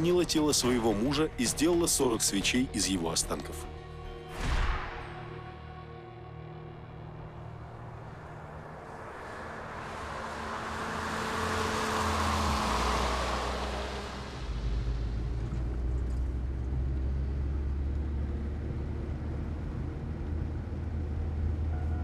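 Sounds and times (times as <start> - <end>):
minibus driving past: 4.7 - 22.0
engine droning inside cab: 6.9 - 22.0.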